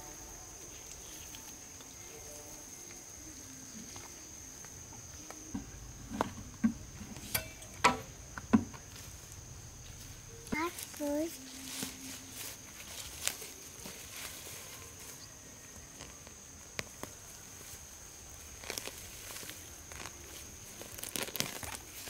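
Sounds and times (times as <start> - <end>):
high-pitched insect drone: 0.0 - 16.8.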